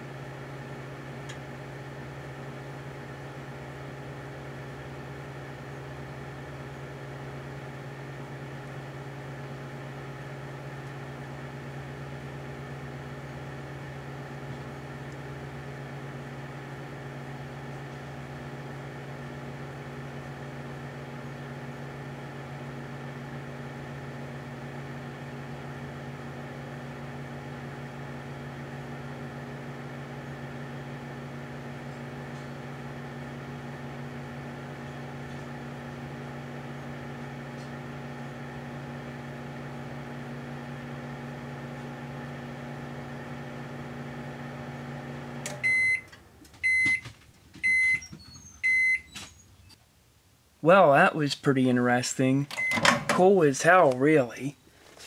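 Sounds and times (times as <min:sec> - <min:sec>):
microwave oven humming: 0:00.0 - 0:49.8, 0:52.3 - 0:54.8
microwave beeps: 0:45.4 - 0:49.8, 0:52.5 - 0:53.1.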